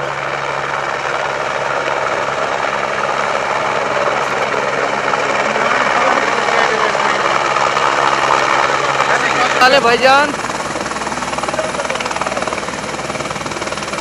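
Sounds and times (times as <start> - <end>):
helicopter rotor and turbine: 0.0 - 14.0.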